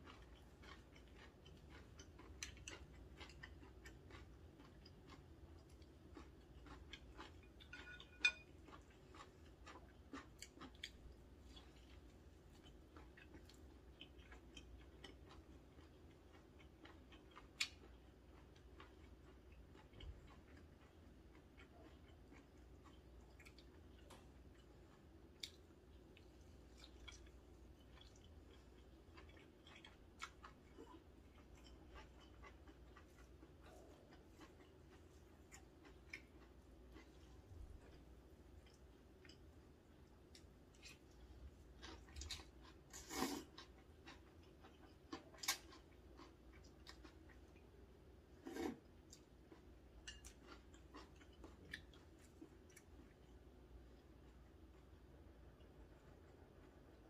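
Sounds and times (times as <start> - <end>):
close-up chewing: 0.0 - 57.0
person slurping noodles: 43.0 - 43.5, 48.4 - 48.8.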